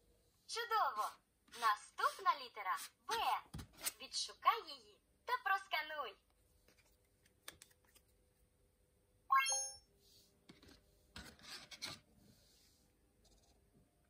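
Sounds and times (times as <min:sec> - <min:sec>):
marker scratching on paper: 0:01.5 - 0:02.9.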